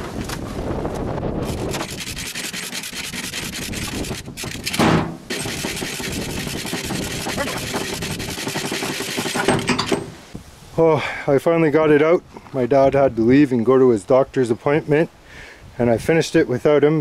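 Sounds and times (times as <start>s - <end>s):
chain hoist ratcheting clicks: 1.5s - 10.1s.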